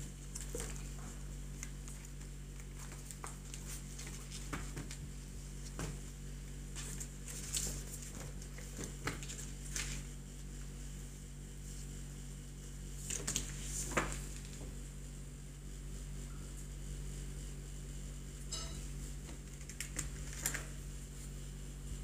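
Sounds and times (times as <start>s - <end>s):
steady low hum: 0.0s - 22.0s
paper rustling: 0.3s - 10.2s, 13.0s - 14.7s, 19.4s - 20.8s.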